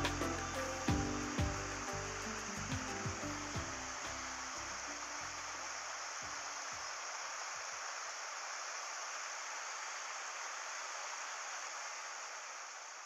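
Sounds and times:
low music notes: 0.0 - 5.2.

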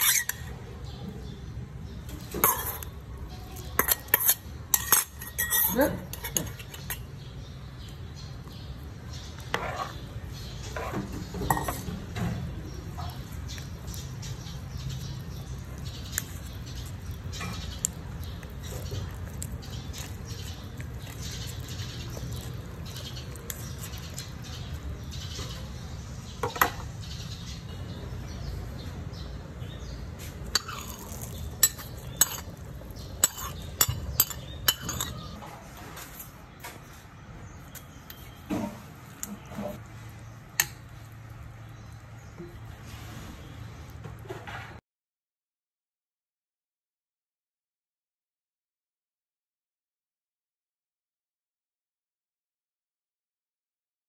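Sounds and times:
metal utensils scraping a pan: 0.0 - 0.5, 2.1 - 7.3, 9.1 - 24.7, 30.2 - 36.3, 38.1 - 40.8.

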